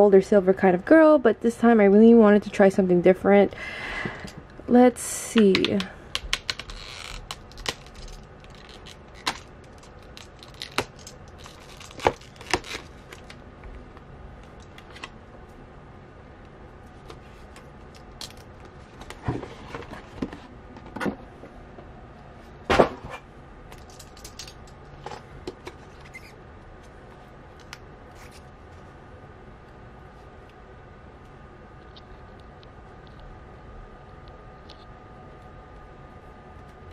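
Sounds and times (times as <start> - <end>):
plastic film crinkling: 6.4 - 13.4
knife slitting shrink-wrap: 6.5 - 13.3.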